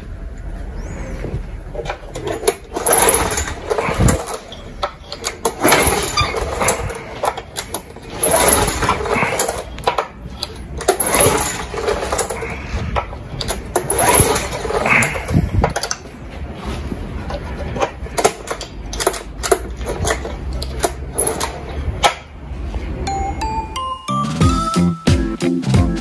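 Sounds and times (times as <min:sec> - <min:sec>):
engine recoil starter cranking: 0:01.7 - 0:22.3.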